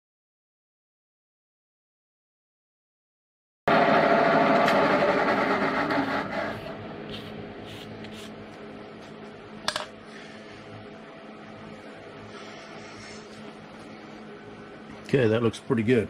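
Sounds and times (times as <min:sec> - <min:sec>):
milling machine spindle running: 0:03.7 - 0:06.8.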